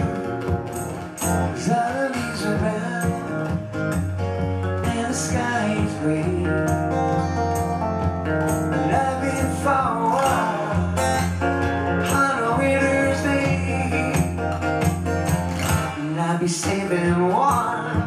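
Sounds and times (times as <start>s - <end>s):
acoustic guitar strumming: 0.0s - 18.0s
man singing: 1.4s - 3.8s, 4.7s - 7.2s, 8.4s - 14.5s, 15.9s - 18.0s.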